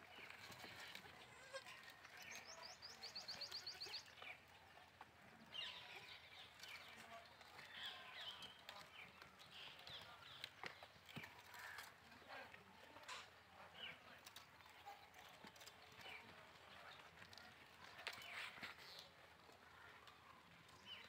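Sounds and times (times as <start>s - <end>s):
small birds chirping: 0.0s - 21.0s
goats bleating: 1.2s - 1.8s.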